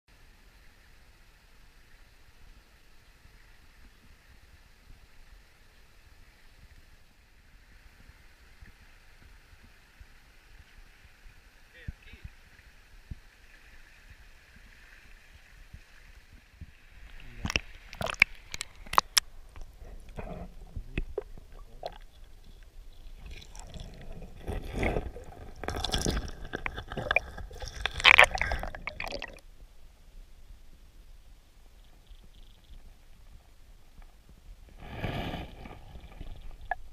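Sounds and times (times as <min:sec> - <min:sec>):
muffled underwater gurgling: 0:23.1 - 0:29.4.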